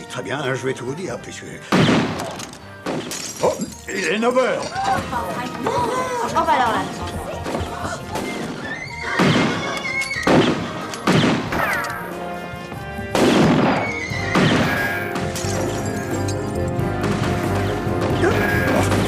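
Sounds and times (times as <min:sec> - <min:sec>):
orchestral film music: 0:00.0 - 0:19.0
gunshots: 0:01.7 - 0:03.3, 0:09.2 - 0:12.0, 0:13.1 - 0:15.7, 0:17.0 - 0:19.0.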